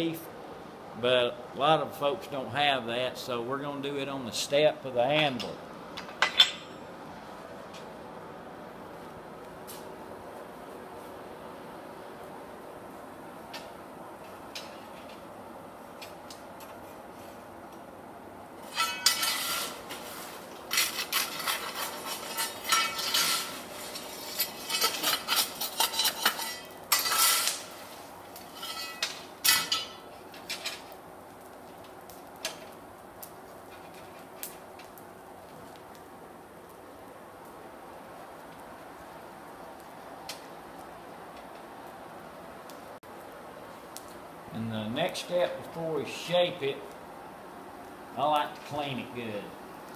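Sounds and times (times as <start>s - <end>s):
steady background hum: 0.0s - 49.9s
metal tongs clanking: 18.6s - 19.8s, 20.7s - 27.8s.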